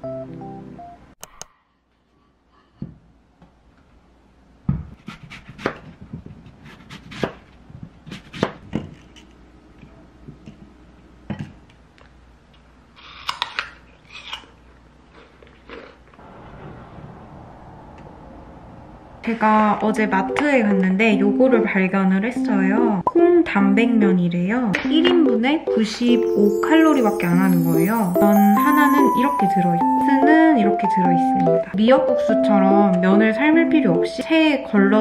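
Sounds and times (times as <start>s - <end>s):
knife slicing apple on board: 5.0s - 5.9s, 6.6s - 9.1s.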